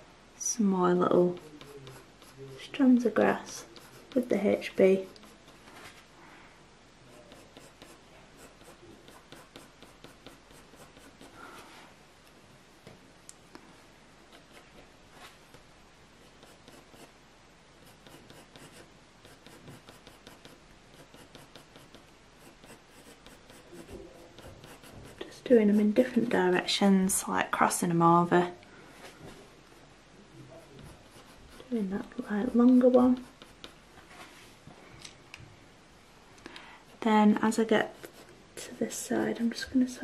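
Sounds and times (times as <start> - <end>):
pencil scratching on paper: 1.1 - 5.6, 7.1 - 11.4, 14.3 - 15.6, 16.2 - 17.2, 17.8 - 26.6, 30.5 - 33.8, 36.9 - 38.8.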